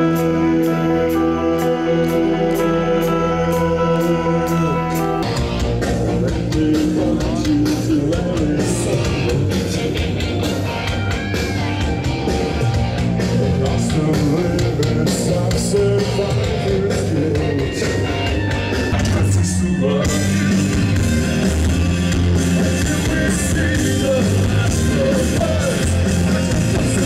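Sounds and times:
metal band playing live: 0.0s - 27.0s.

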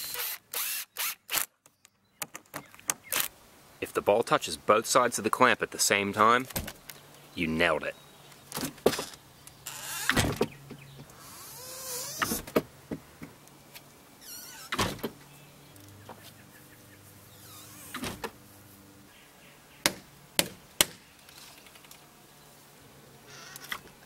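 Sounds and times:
faint squeaky glides: 11.2s - 12.4s, 14.2s - 14.8s, 16.0s - 18.1s.

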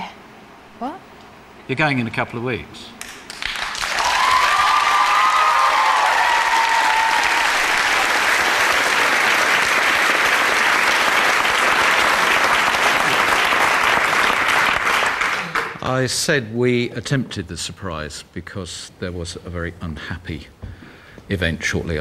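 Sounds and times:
audience applauding: 3.0s - 15.8s.

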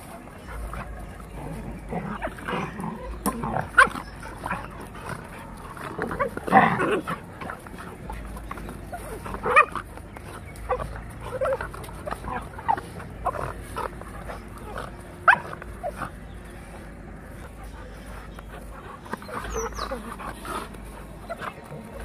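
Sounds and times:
dogs vocalising while tussling: 0.0s - 22.0s
dog yelping: 18.8s - 20.6s.

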